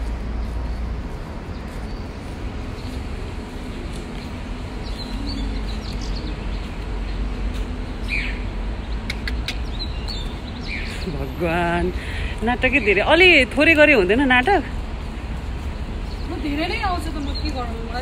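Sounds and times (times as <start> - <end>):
bird chirps: 8.0 - 11.1.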